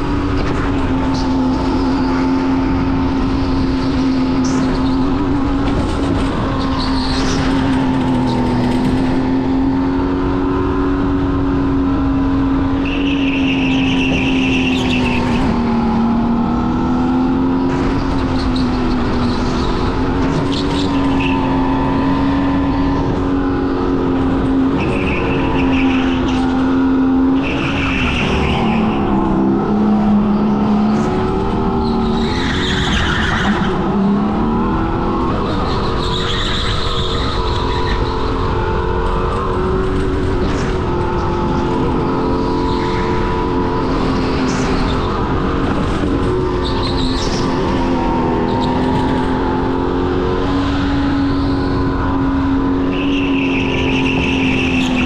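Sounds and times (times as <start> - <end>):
go-kart engine at high revs: 0.0 - 55.0
tyre squeal: 6.4 - 8.8, 12.8 - 16.1, 18.0 - 23.5, 24.5 - 38.5, 46.3 - 49.5, 50.8 - 55.0.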